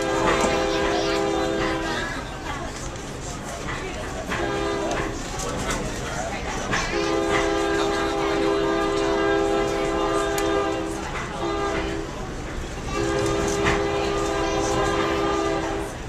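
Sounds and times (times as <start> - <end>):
locomotive air horn blasts: 0.0 - 2.0, 4.4 - 5.2, 6.9 - 12.1, 12.9 - 16.0.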